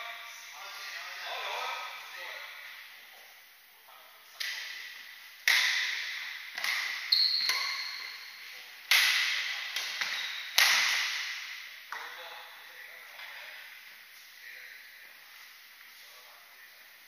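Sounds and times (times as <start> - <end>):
rackets striking shuttlecock: 4.4 - 12.2
short high squeak: 7.1 - 8.1.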